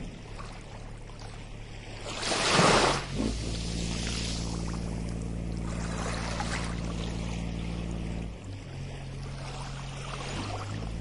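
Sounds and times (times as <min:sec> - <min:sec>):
low steady drone: 0:00.0 - 0:11.0
water washing on sandy beach: 0:02.0 - 0:04.8.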